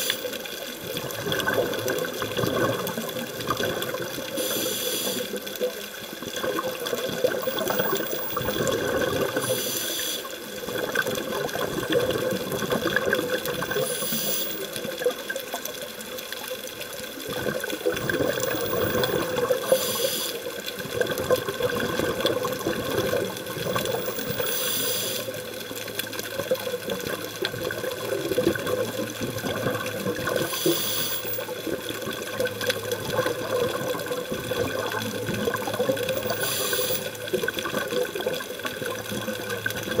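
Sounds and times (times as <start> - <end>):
exhaust bubbles gurgling: 0.0 - 40.0
regulator hiss: 4.3 - 5.5, 9.3 - 10.6, 13.6 - 14.8, 18.5 - 20.5, 24.1 - 25.5, 30.4 - 31.6, 36.2 - 37.2.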